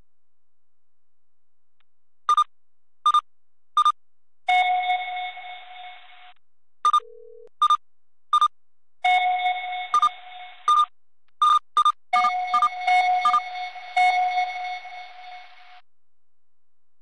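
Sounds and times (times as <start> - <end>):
short high beeps: 9.2 - 13.5.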